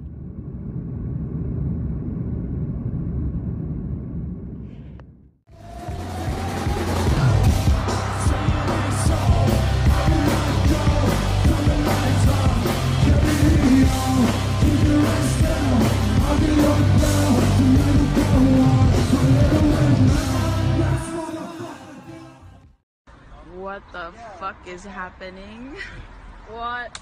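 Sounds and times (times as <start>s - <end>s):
loud rock music: 5.5s - 22.6s.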